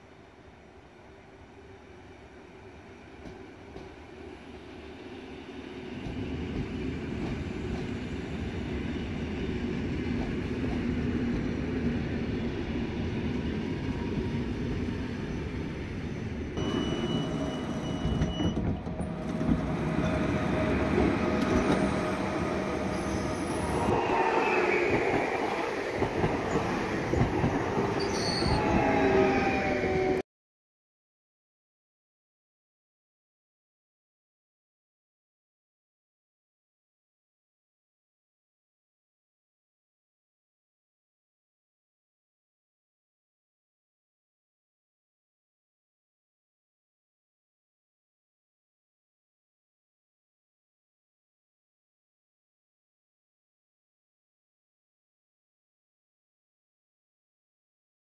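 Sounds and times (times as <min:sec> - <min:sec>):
train rumbling: 0:00.9 - 0:30.2
train wheels squealing: 0:15.2 - 0:30.1.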